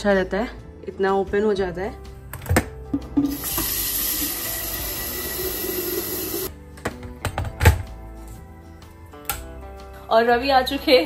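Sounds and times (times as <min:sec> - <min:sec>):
soft background music: 0:00.0 - 0:11.0
tap water running into sink: 0:03.0 - 0:06.5.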